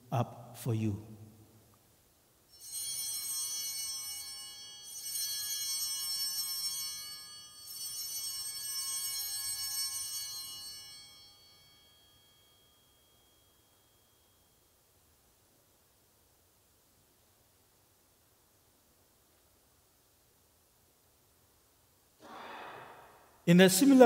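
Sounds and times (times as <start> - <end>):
altar bells ringing: 2.5 - 14.8.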